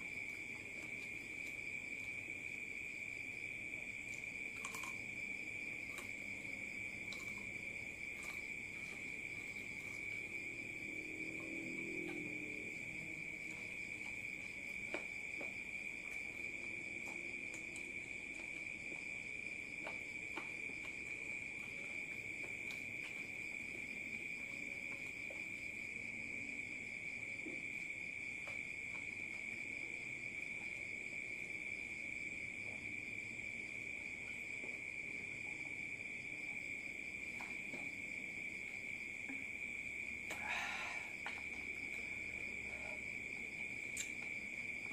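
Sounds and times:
high-pitched insect trill: 0:00.0 - 0:32.3.

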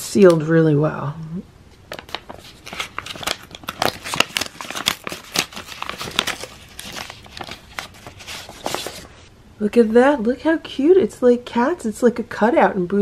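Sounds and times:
paper envelope tearing: 0:01.9 - 0:09.2.

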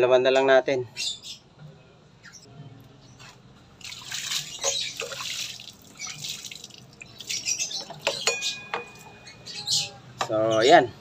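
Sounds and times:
water splashing on metal: 0:03.8 - 0:08.2.

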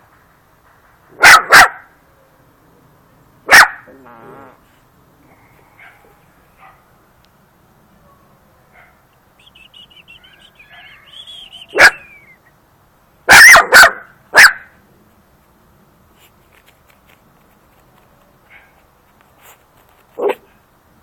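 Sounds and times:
puppy barking: 0:01.2 - 0:02.0, 0:03.5 - 0:04.5, 0:05.8 - 0:06.9, 0:08.1 - 0:09.0, 0:10.2 - 0:11.1, 0:11.7 - 0:12.2, 0:13.3 - 0:14.8, 0:18.5 - 0:18.8, 0:20.2 - 0:20.6.

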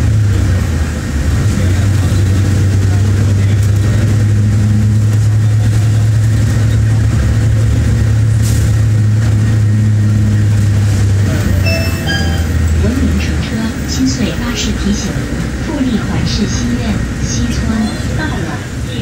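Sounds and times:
bus engine drone: 0:00.0 - 0:19.0
electronic chime tones: 0:11.6 - 0:12.7.

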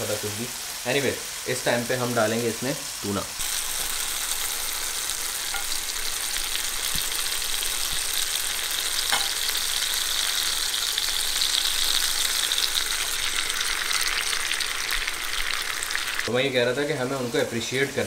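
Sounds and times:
food sizzling in frying pan: 0:00.0 - 0:18.0.

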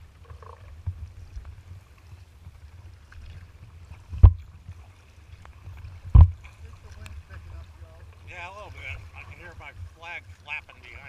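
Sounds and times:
wind rumble on microphone: 0:00.0 - 0:10.0
kayak moving through choppy water: 0:00.0 - 0:11.0
loud thump against hull: 0:06.0 - 0:06.4.

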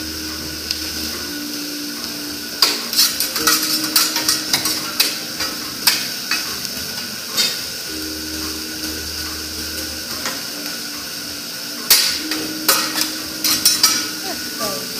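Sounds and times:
griddle sizzling: 0:00.0 - 0:14.9
metal spatulas clacking: 0:02.6 - 0:06.5, 0:11.9 - 0:14.2.

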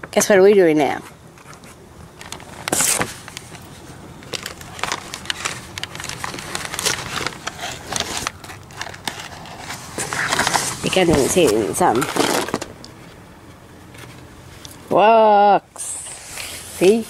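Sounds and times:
cardboard packaging rustling: 0:01.4 - 0:12.8.

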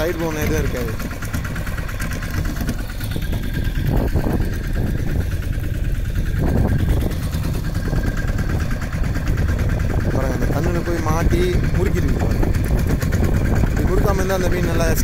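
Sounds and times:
outboard motor idling: 0:00.0 - 0:15.0.

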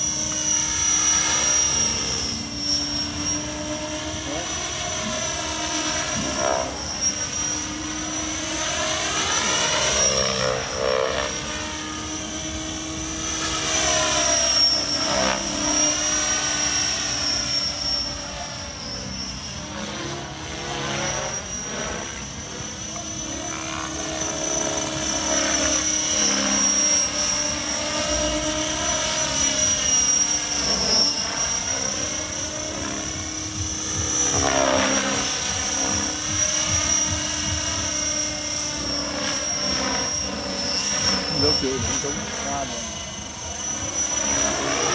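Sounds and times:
model helicopter whining: 0:00.0 - 0:44.9.

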